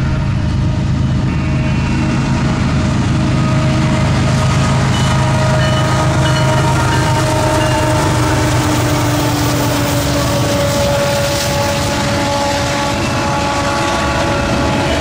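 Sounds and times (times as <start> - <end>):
locomotive engine drone: 0.0 - 15.0
train horn chord: 0.0 - 15.0.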